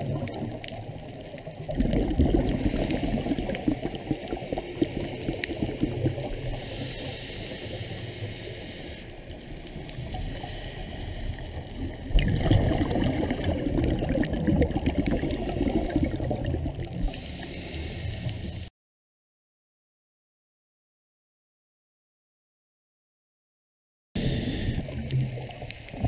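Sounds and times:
underwater gurgling water: 0:00.0 - 0:18.7, 0:24.2 - 0:26.0.

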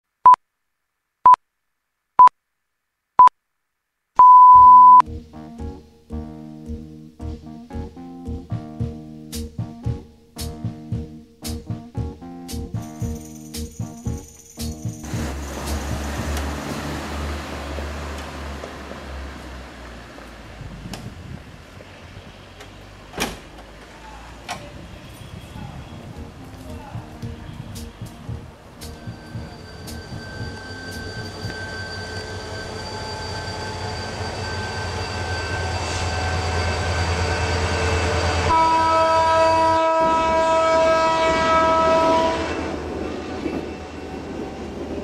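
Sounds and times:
long electronic beep: 0:04.2 - 0:05.0
short electronic beeps: 0:04.2 - 0:05.0
music with bass and keyboard: 0:05.0 - 0:18.1, 0:25.9 - 0:31.4
front door click: 0:23.1 - 0:23.9
low rumble: 0:26.0 - 0:31.6.

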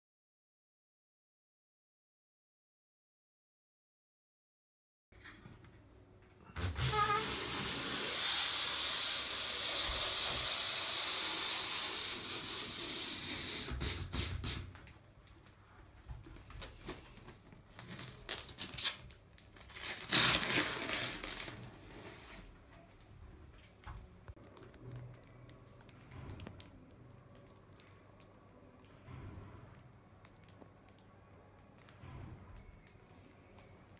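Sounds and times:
roller squeak: 0:06.5 - 0:07.8
adhesive film unwinding hiss: 0:06.5 - 0:14.7, 0:17.8 - 0:21.7
film tearing from roll: 0:17.8 - 0:21.6.

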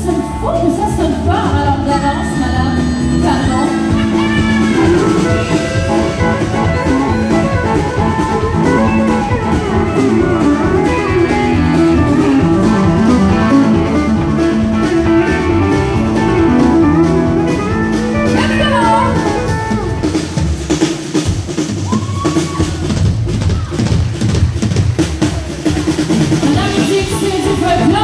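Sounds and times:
pedal steel guitar: 0:00.0 - 0:20.4
country band playing: 0:00.0 - 0:28.0.

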